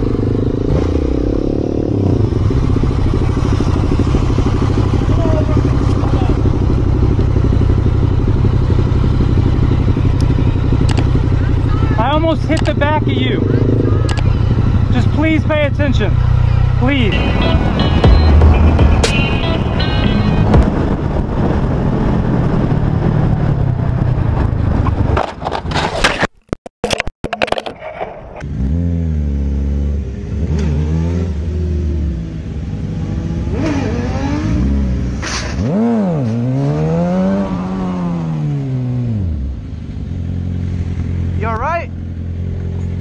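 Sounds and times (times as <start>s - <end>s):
motorcycle engine revving: 0.0s - 25.2s, 28.4s - 43.0s
sharp clicks: 10.2s - 11.1s, 12.5s - 12.8s, 14.0s - 14.3s
wind rush: 17.3s - 25.8s.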